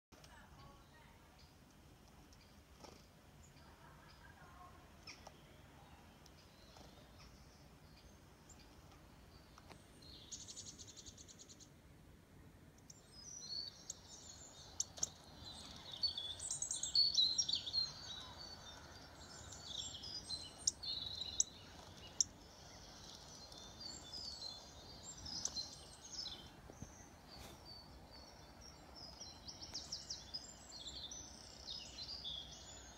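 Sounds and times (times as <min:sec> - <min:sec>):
birdsong through small speaker: 0:00.2 - 0:11.8, 0:12.7 - 0:32.9.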